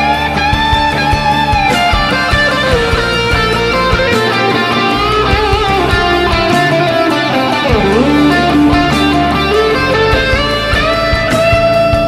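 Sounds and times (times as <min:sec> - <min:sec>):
guitar background music: 0:00.0 - 0:12.0.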